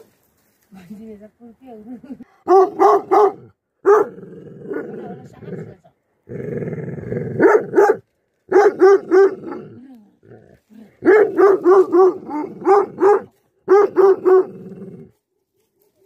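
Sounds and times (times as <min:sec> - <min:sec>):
dog barking deeply: 0:02.4 - 0:05.0, 0:07.3 - 0:09.8, 0:11.0 - 0:14.6
dog growling low: 0:04.1 - 0:07.4.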